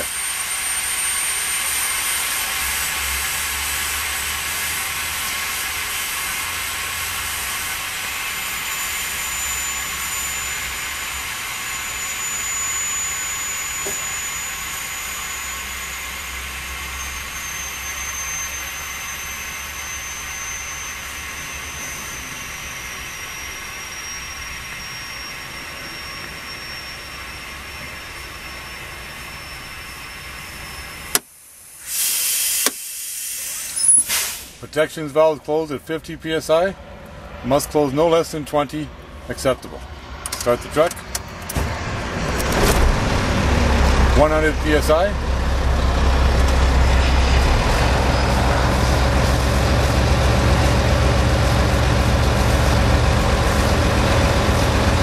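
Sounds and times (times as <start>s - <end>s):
high whistle dropping in pitch: 0.0s - 31.2s, 31.8s - 34.8s, 41.7s - 55.0s
compressed air hissing: 31.5s - 34.8s.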